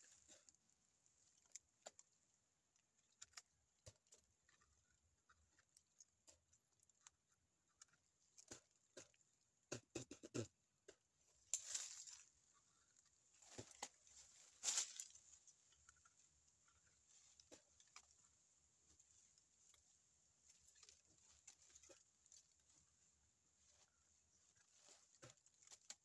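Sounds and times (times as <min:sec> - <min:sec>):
teeth gnawing on bark: 0:01.3 - 0:09.2, 0:14.8 - 0:18.5.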